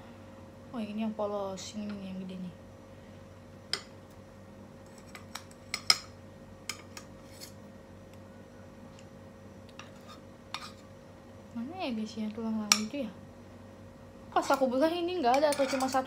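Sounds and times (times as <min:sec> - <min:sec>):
cutlery clinking on frying pan: 0:15.3 - 0:16.0.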